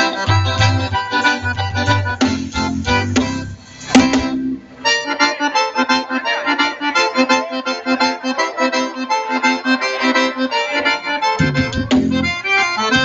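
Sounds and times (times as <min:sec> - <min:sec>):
pulsing bass beat: 0:00.0 - 0:04.6, 0:11.4 - 0:13.0
accordion: 0:00.0 - 0:13.0
band sharp hit: 0:00.3 - 0:04.5, 0:11.4 - 0:12.4.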